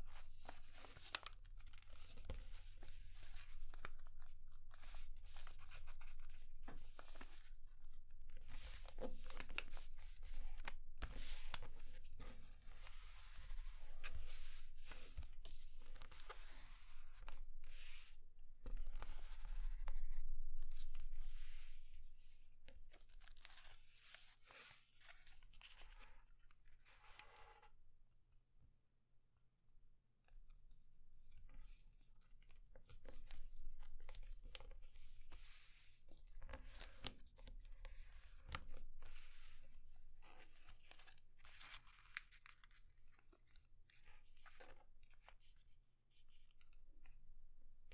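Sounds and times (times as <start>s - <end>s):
paper rustling and crackling: 0.5s - 5.8s.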